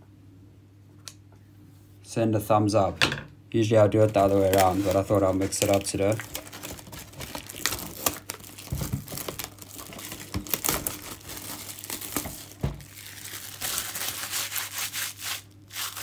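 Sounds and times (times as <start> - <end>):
plastic wrap crinkling: 3.9 - 16.0.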